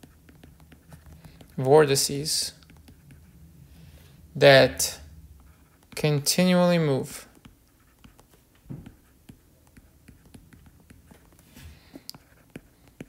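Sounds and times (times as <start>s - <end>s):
stylus tapping on tablet screen: 0.0s - 1.6s, 2.6s - 3.2s, 7.3s - 13.0s.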